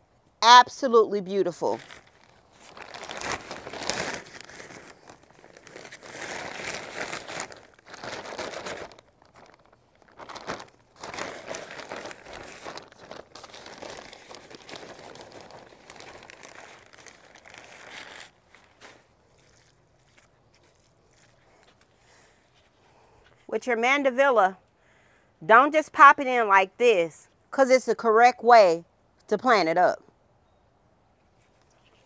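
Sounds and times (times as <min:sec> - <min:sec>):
rustling and crinkling of plastic pots: 0:01.5 - 0:23.5.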